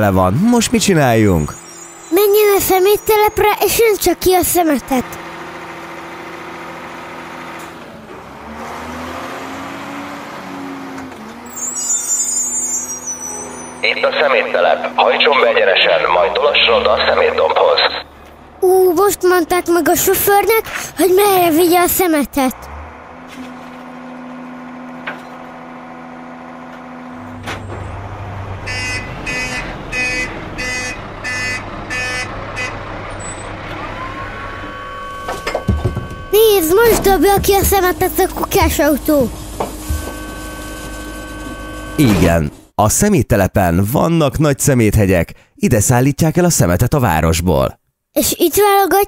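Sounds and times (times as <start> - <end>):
garbage truck engine running: 0.0 - 42.7
reversing alarm beeping: 11.5 - 14.2, 28.6 - 39.0, 39.8 - 42.2.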